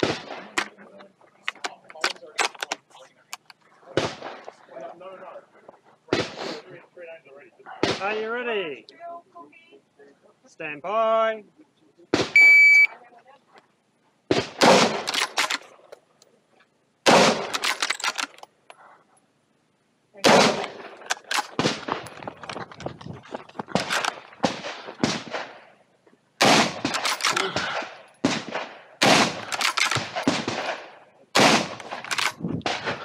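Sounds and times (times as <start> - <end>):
shotgun shots: 0.0 - 0.8, 3.9 - 4.6, 6.1 - 6.4, 7.8 - 8.2, 12.1 - 12.5, 14.3 - 15.6, 17.0 - 18.3, 20.2 - 22.2, 23.7 - 25.8, 26.4 - 33.0.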